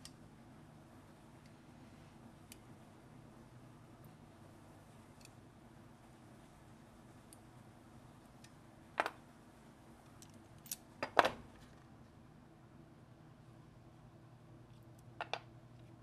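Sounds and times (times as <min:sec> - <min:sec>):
faint steady hum: 0:00.0 - 0:16.0
metal pliers clacking: 0:10.2 - 0:11.3.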